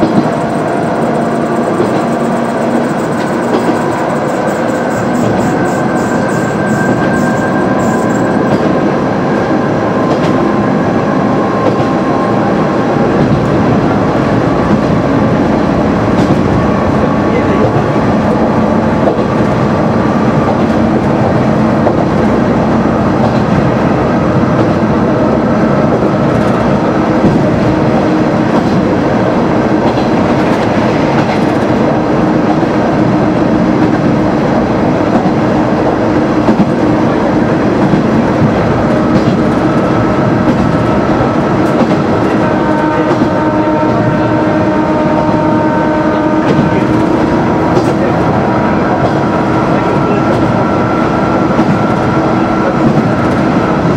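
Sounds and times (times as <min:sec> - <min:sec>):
wheels clicking over rails: 0:00.0 - 0:08.7
multi-pitch whining tone: 0:00.2 - 0:08.5.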